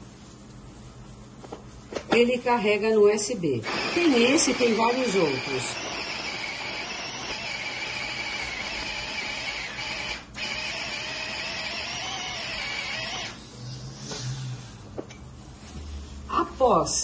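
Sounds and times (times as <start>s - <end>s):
food processor motor whining: 3.6s - 13.4s.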